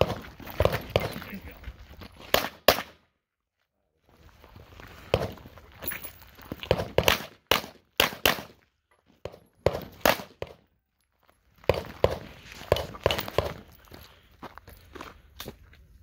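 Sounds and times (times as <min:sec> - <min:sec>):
pistol shots: 0:02.3 - 0:03.0, 0:06.7 - 0:08.6, 0:09.6 - 0:10.6.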